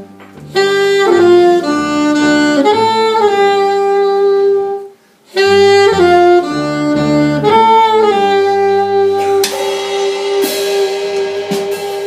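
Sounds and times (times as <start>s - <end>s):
alto saxophone playing: 0.0s - 12.0s
jazz band playing: 0.0s - 12.0s
cymbal strikes: 9.2s - 12.0s.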